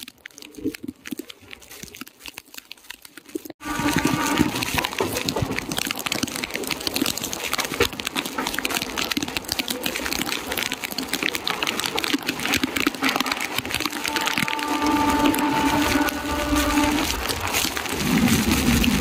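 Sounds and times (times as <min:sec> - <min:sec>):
heavy rain: 0:03.5 - 0:19.0
train running noise: 0:03.6 - 0:04.9, 0:13.1 - 0:19.0
rushing wind: 0:13.4 - 0:19.0.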